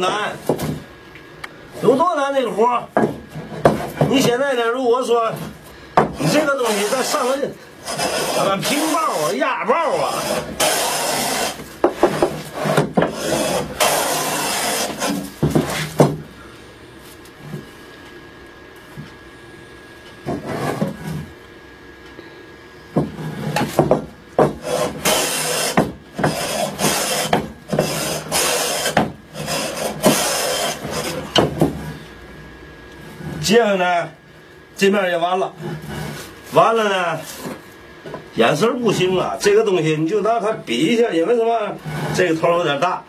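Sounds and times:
hand plane shaving wood: 6.2 - 15.9, 24.4 - 31.9, 35.5 - 36.4, 41.8 - 42.4.

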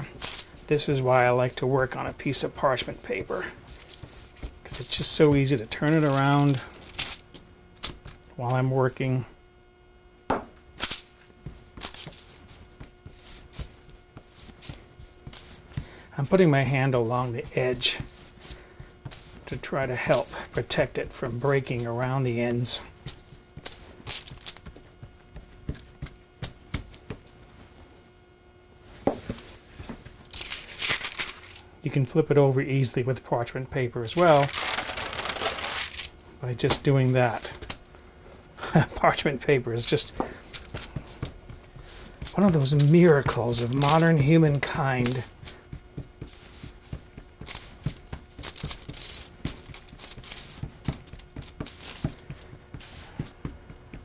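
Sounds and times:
hands patting dough: 0.0 - 8.8, 10.3 - 27.8, 38.6 - 54.0
paper rustling: 2.4 - 8.1, 11.8 - 16.4, 29.2 - 31.7, 34.2 - 36.1, 39.8 - 53.6.

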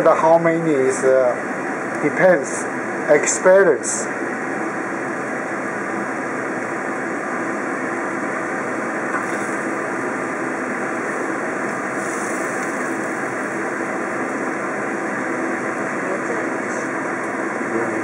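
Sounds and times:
stir-fry rushing noise: 9.1 - 10.2, 11.0 - 14.0.

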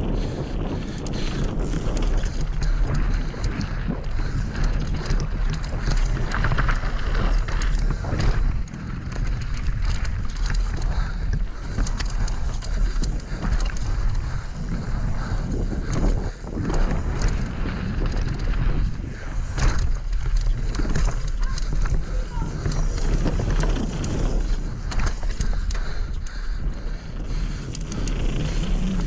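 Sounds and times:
tyres rattling on stony trail: 0.0 - 29.0
wind buffeting microphone: 0.0 - 29.0
bike chain and frame knocking: 0.9 - 29.0.

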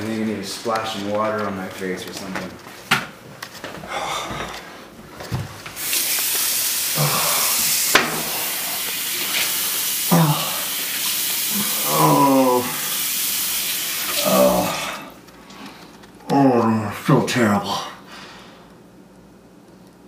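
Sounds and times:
tap water running into sink: 5.8 - 14.4.

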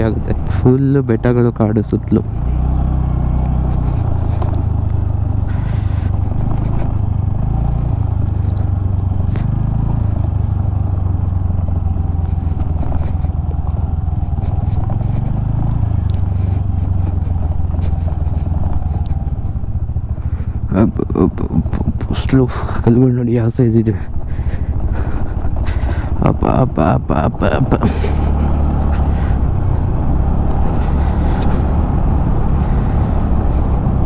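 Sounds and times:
person speaking: 0.0 - 2.4, 20.7 - 24.2, 25.8 - 29.5
scooter engine and road rumble: 0.0 - 34.0
stones clicking under tyres: 1.9 - 34.0.

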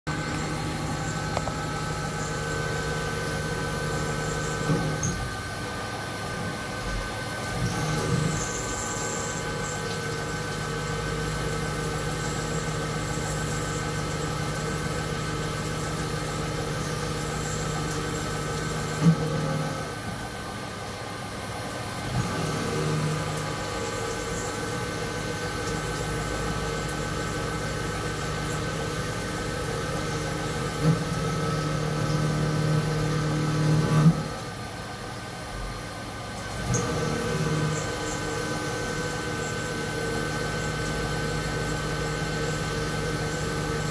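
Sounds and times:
milling machine hum and whine: 0.1 - 43.9.

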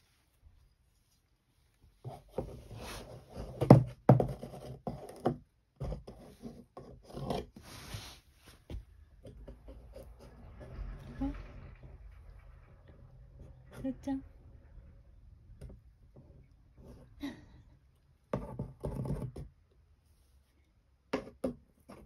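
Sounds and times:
scraping and knocking on cardboard: 2.0 - 10.1, 18.3 - 19.6, 21.1 - 22.0.

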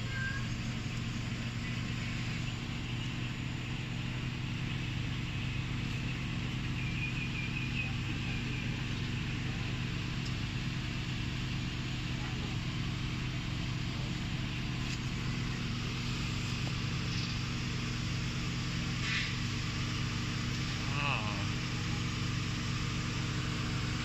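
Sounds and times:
car engine idling: 0.0 - 24.0.

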